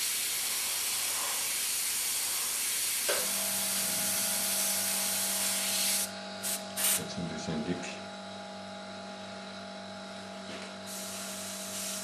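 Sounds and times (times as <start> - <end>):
airbrush spraying hiss: 0.0 - 7.1, 10.9 - 12.0
steady low hum: 2.1 - 12.0.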